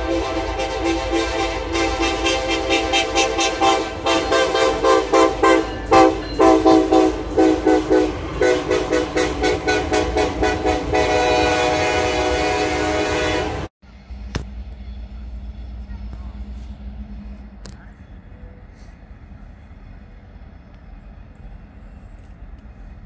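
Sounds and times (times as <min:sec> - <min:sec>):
locomotive air horn: 0:00.0 - 0:13.7.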